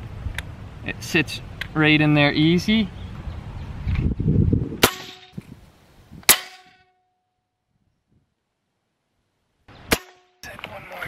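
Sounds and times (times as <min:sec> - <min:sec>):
air rifle shots: 0:04.8 - 0:05.4, 0:06.2 - 0:06.8.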